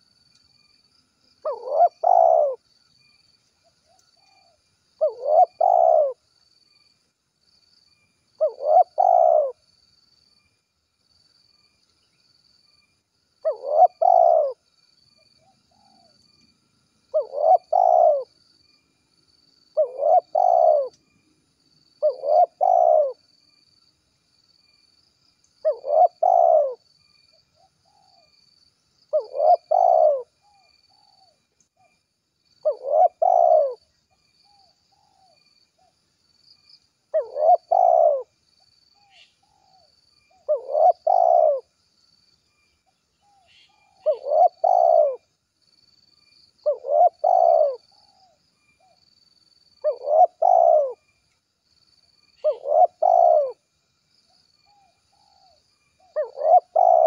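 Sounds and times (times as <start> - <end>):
faint insect chirping: 0.0 - 57.0
dove cooing: 1.4 - 2.6, 4.2 - 6.2, 8.4 - 9.6, 13.4 - 14.6, 17.1 - 18.4, 19.8 - 21.0, 22.0 - 23.2, 25.6 - 26.8, 29.1 - 31.9, 32.6 - 33.9, 37.1 - 38.4, 39.0 - 41.7, 43.2 - 45.3, 46.6 - 49.0, 49.8 - 51.0, 52.4 - 53.6, 54.7 - 57.0.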